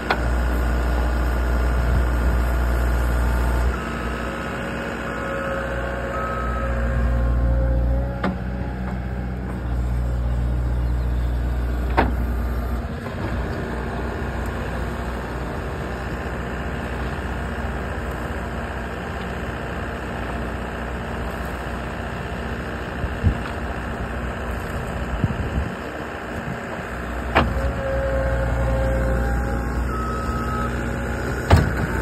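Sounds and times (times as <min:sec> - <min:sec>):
diesel engine running under load: 0:00.0 - 0:32.0
short falling squeal: 0:05.2 - 0:08.0.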